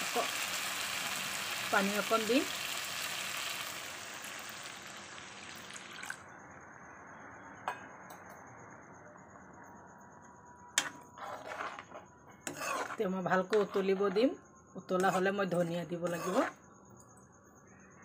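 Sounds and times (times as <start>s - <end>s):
water sizzling in hot wok: 0.0s - 6.2s.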